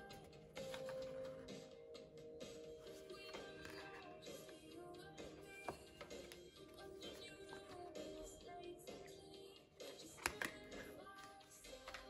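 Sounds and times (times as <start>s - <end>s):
soft background music: 0.0s - 12.0s
photo prints rustling and clicking: 0.1s - 1.6s.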